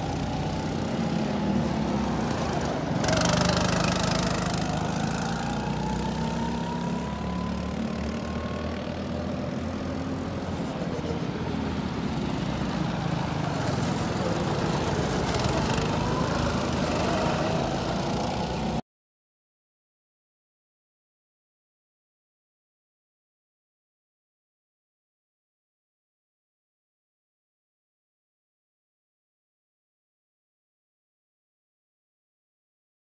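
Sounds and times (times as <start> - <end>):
drone of other karts: 0.0 - 18.8
go-kart engines accelerating: 0.0 - 18.8.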